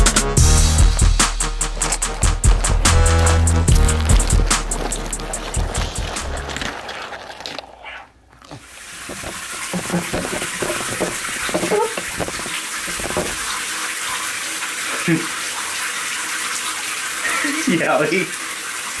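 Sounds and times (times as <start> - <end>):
background music: 0.0 - 6.7
water running into a bathtub: 0.3 - 19.0.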